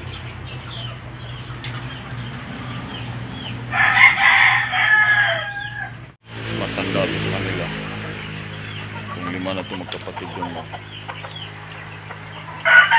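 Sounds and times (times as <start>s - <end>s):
rooster crowing: 3.4s - 6.1s, 12.4s - 12.9s.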